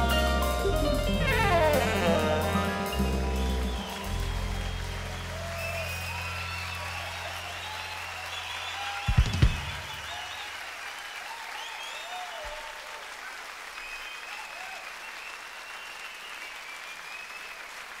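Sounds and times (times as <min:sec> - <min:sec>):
held low bass note: 0:00.0 - 0:05.1
audience applauding and cheering: 0:00.0 - 0:18.0
audience shouting: 0:01.6 - 0:13.0.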